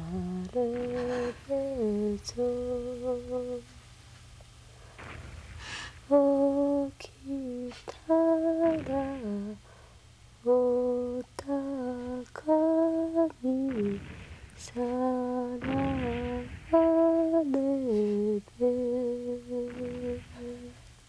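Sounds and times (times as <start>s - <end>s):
woman humming a lullaby: 0.0s - 3.6s, 6.1s - 9.6s, 10.4s - 14.0s, 14.6s - 20.8s
breaths: 4.7s - 6.0s, 9.6s - 10.1s.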